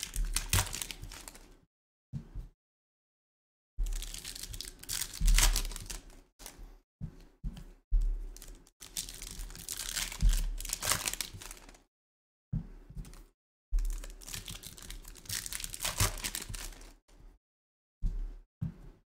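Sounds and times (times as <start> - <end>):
foil wrappers tearing and crinkling: 0.0 - 1.5, 3.9 - 6.2, 8.4 - 11.8, 13.8 - 16.9.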